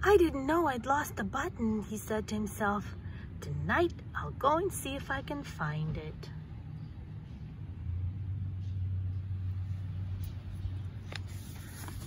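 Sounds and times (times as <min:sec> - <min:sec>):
low steady rumble: 0:00.0 - 0:12.0
book page turning: 0:10.2 - 0:12.0.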